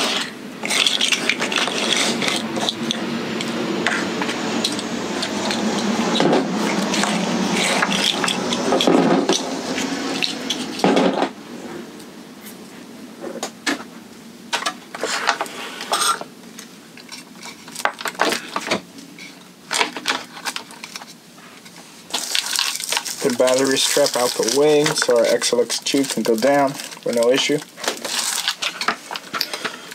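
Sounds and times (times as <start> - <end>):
plastic pieces clattering: 0.0 - 3.0, 4.6 - 9.4, 17.0 - 21.2, 22.1 - 29.8.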